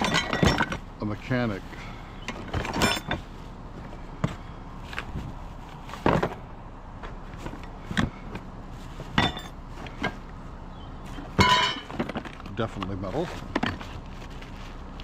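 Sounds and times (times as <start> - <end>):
metal parts clanking in a box: 0.0 - 0.8, 2.3 - 3.3, 9.1 - 10.2, 11.1 - 14.2.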